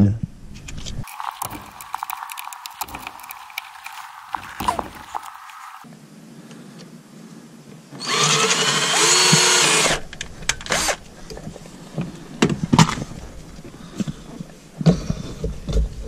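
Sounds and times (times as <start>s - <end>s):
cordless drill whining: 8.0s - 10.0s, 10.7s - 11.0s.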